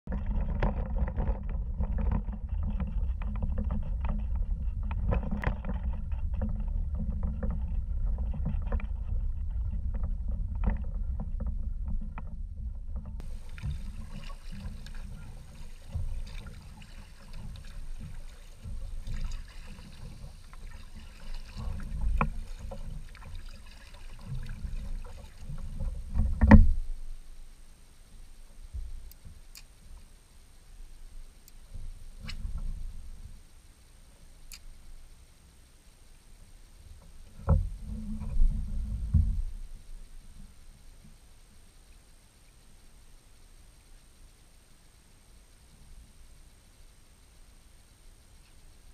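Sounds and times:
paddle strokes in water: 0:00.1 - 0:27.5
water against hull: 0:00.1 - 0:48.9
kayak hull scraping on asphalt: 0:13.1 - 0:26.9.

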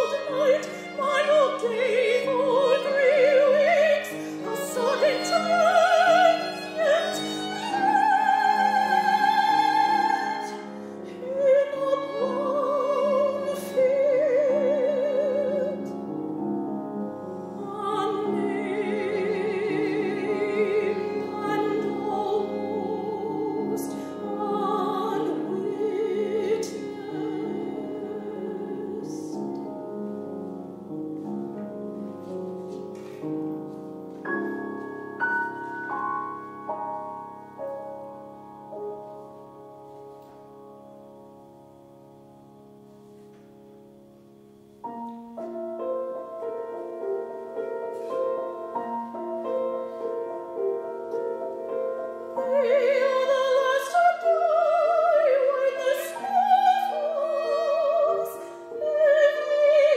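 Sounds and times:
operatic soprano singing: 0:00.0 - 0:16.1, 0:17.4 - 0:29.8, 0:51.9 - 0:59.9
piano accompaniment: 0:00.0 - 0:59.9.

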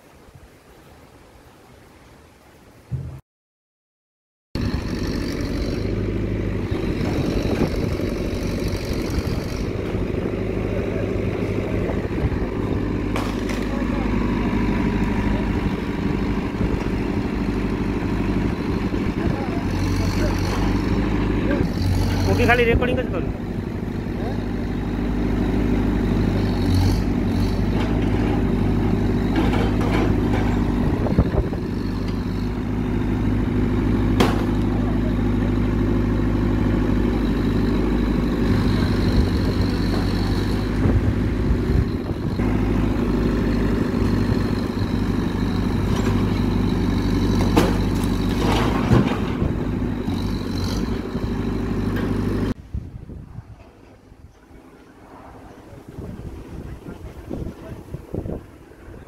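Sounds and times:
sharp knocks: 0:02.9 - 0:03.2, 0:34.2 - 0:34.7
diesel engine running: 0:04.6 - 0:52.6.

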